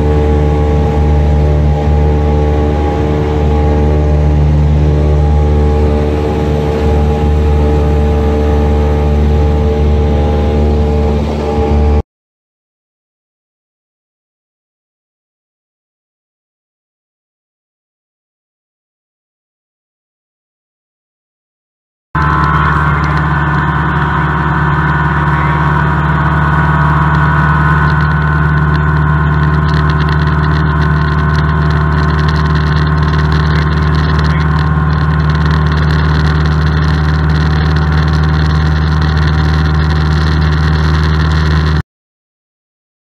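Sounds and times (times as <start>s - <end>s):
light aircraft engine drone in cabin: 0.0s - 12.0s, 22.2s - 41.8s.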